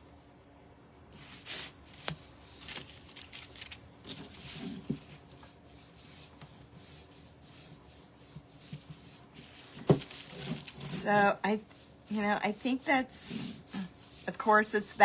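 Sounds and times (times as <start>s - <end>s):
paintbrush scratching on wood: 4.5s - 15.0s.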